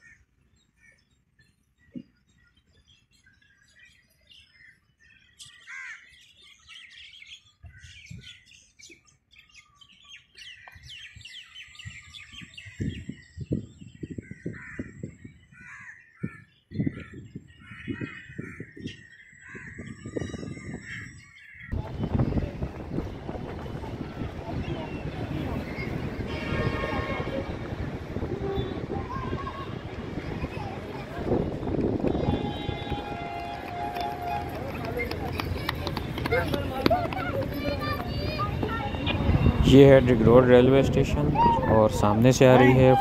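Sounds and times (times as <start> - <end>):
birds chirping: 0.0 - 43.0.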